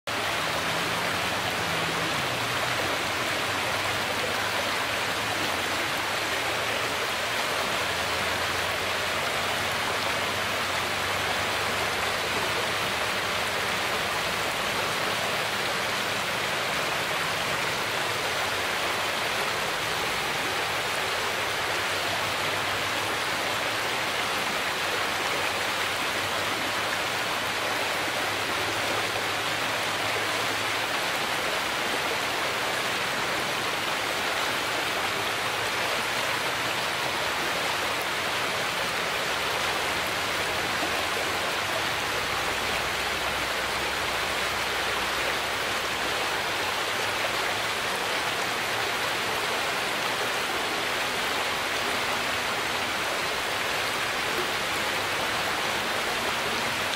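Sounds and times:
stream rushing over rocks: 0:00.0 - 0:56.9.

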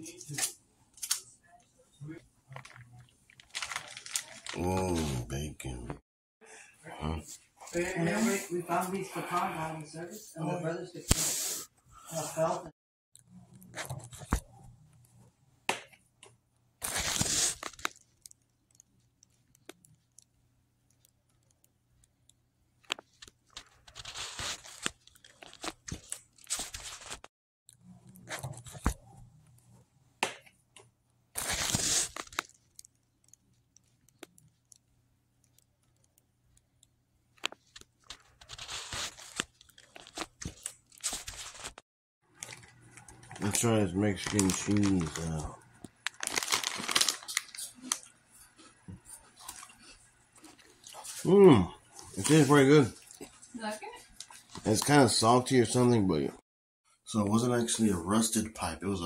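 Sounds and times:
person chewing: 0:23.0 - 0:28.8, 0:31.4 - 0:41.8, 0:45.9 - 0:51.3, 0:53.0 - 0:53.5.

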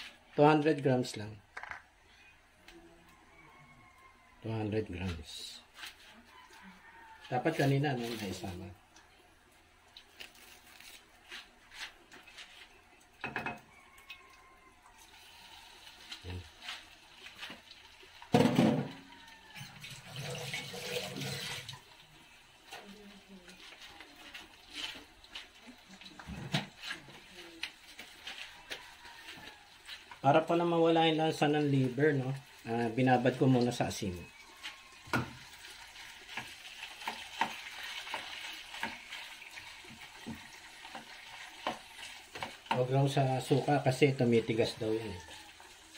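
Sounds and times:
water running and splashing: 0:15.0 - 0:45.9
liver sizzling in frying pan: 0:31.7 - 0:43.9, 0:45.2 - 0:45.9.

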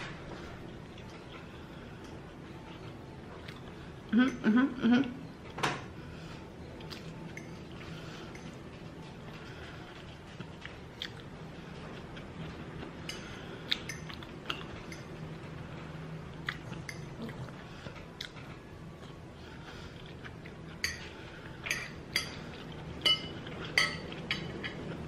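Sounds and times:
cutlery clinking on a dish: 0:20.8 - 0:24.8.

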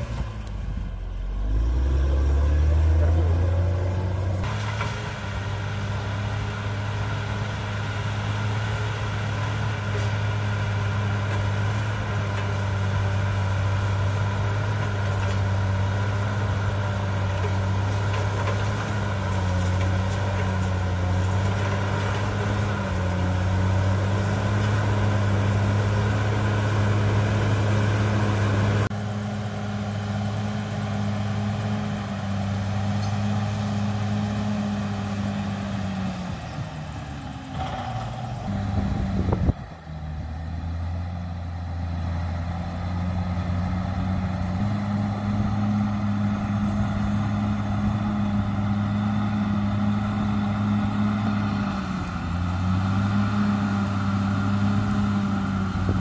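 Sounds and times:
bulldozer diesel engine under load: 0:00.0 - 0:56.0
blade pushing earth and rock: 0:01.4 - 0:28.9.

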